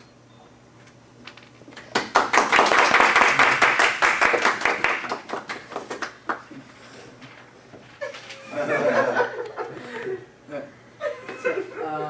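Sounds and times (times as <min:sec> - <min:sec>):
audience applause: 0:01.9 - 0:06.4.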